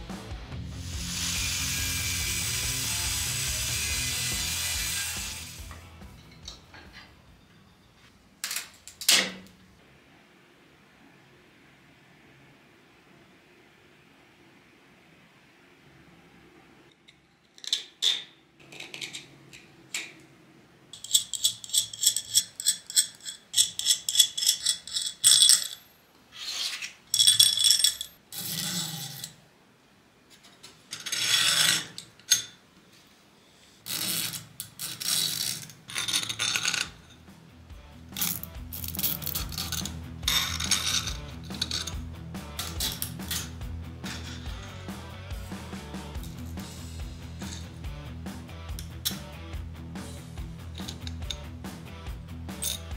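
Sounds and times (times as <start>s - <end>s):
background music: 0.0s - 7.8s, 37.0s - 52.9s
metal scrapes and clinks: 21.0s - 29.4s, 33.8s - 37.3s, 38.2s - 44.9s, 46.2s - 47.8s, 50.6s - 51.5s, 52.5s - 52.9s.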